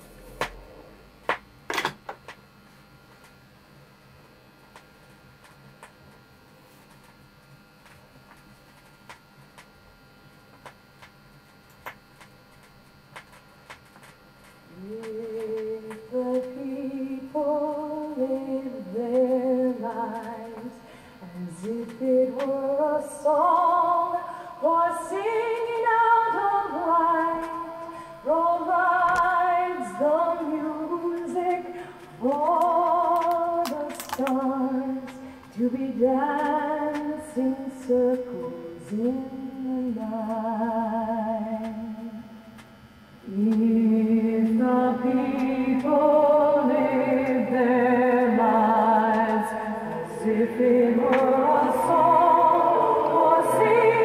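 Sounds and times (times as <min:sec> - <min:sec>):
woman singing with vibrato: 0:14.7 - 0:42.1, 0:43.3 - 0:54.0.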